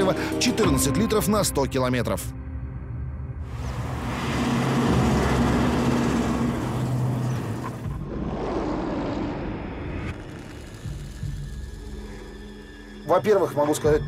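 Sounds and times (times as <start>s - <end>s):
military vehicle engine humming: 3.5s - 8.0s
loud rushing noise: 3.5s - 10.0s.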